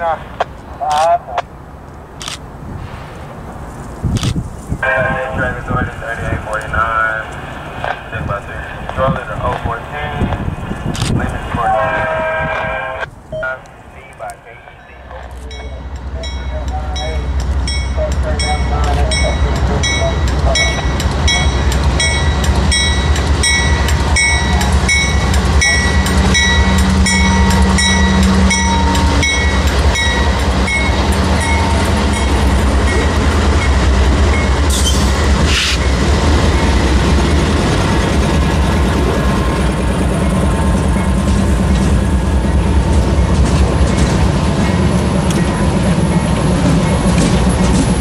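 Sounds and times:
diesel locomotive engine drone: 0.0s - 48.0s
train wheels on rails: 5.5s - 48.0s
locomotive bell ringing: 14.6s - 48.0s.

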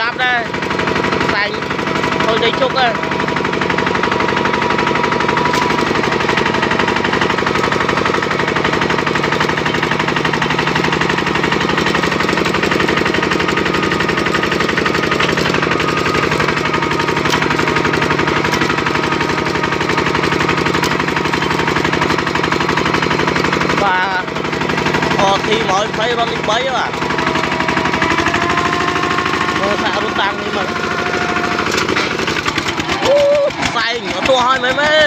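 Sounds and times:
walking tractor diesel engine: 0.0s - 35.0s.

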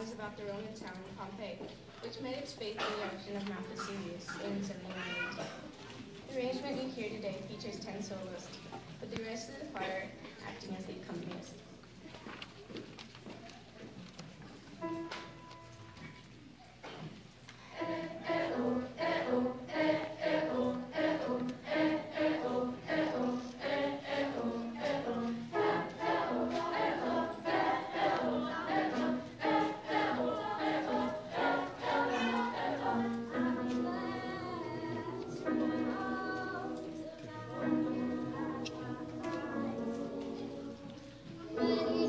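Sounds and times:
choir singing: 17.7s - 42.0s.

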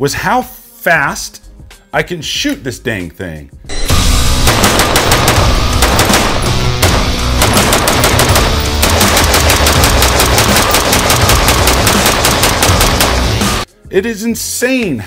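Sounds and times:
background music: 0.0s - 15.0s
rifle shots in rapid strings: 4.3s - 13.7s.

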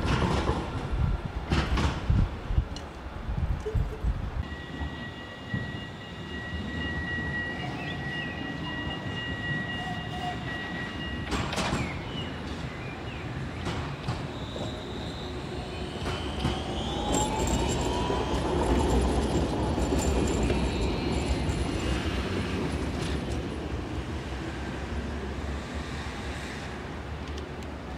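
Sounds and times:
tram rolling rumble: 0.0s - 27.9s
faint high squeal: 4.4s - 23.4s
tram motor whine: 4.4s - 24.6s.

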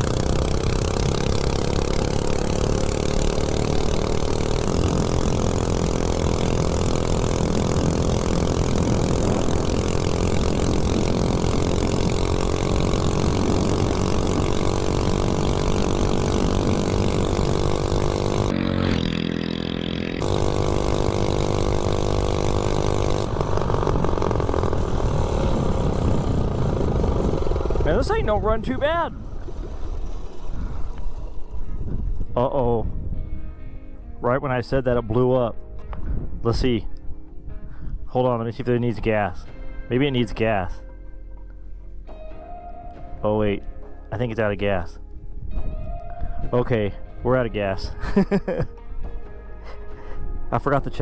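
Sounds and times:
engine at high revs: 0.0s - 28.6s
wind rushing over microphone: 7.0s - 18.3s, 23.3s - 33.5s, 36.0s - 36.6s, 45.1s - 46.7s.

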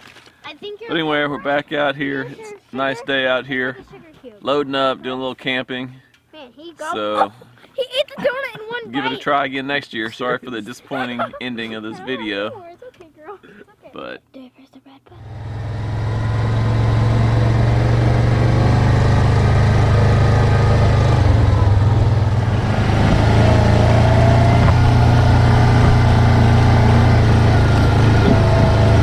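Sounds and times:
atv engine running: 15.2s - 29.0s.

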